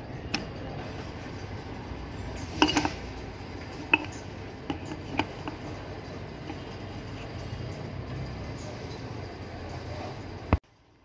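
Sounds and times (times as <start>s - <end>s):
low background noise: 0.0s - 11.0s
metal tools clinking: 2.4s - 5.8s.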